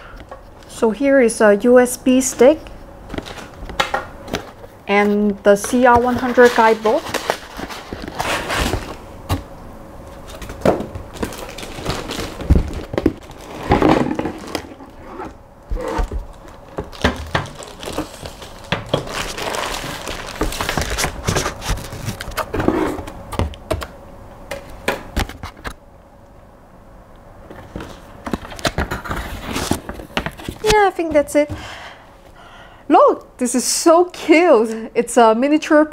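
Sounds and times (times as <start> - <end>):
plastic bag crinkling: 5.5 - 9.0, 10.1 - 15.0, 16.0 - 22.5
cardboard and foam scraping: 5.7 - 9.0, 11.2 - 16.3, 17.0 - 23.1, 28.7 - 30.8.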